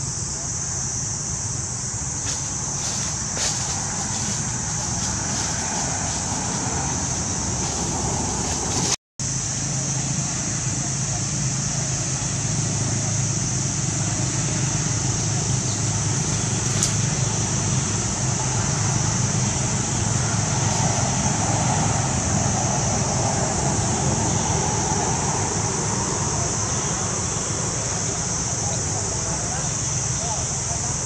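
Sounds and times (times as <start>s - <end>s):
low constant rumble: 0.0s - 22.3s.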